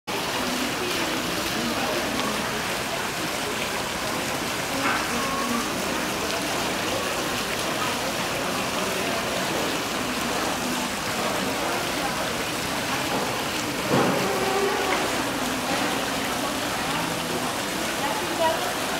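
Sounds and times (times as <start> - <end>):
fountain water splashing: 0.1 - 18.9
loud splash or knock: 13.2 - 14.5.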